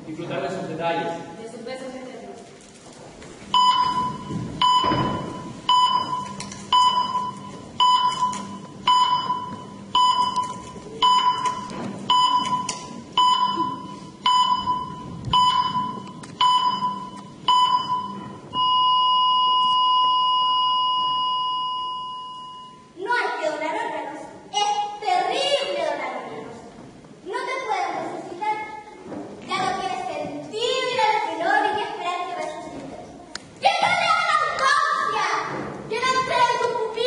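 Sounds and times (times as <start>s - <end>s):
heart monitor beeping: 3.5s - 22.9s
heart monitor flatline tone: 3.5s - 22.9s.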